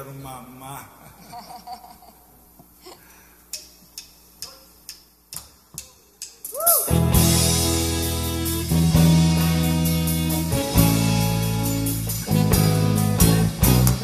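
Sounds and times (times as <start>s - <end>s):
rock band playing: 6.8s - 14.0s.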